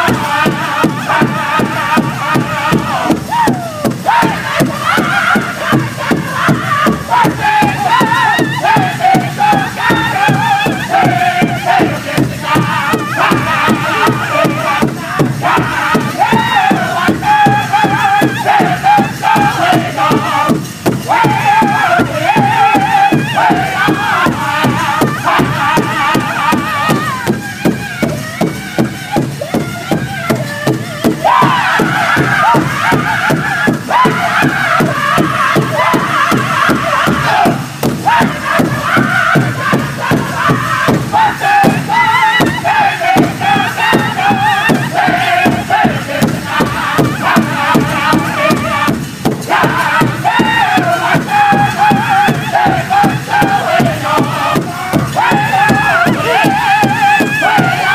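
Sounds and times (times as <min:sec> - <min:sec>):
group singing in high voices: 0:00.0 - 0:57.9
steady beats on big drum: 0:00.0 - 0:57.9.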